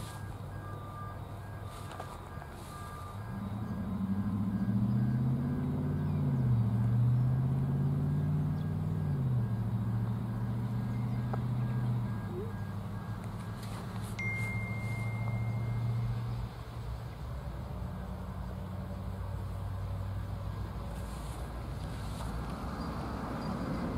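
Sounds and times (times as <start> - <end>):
diesel locomotive engine humming: 0.0 - 23.9
thin high steady tone: 14.1 - 16.5.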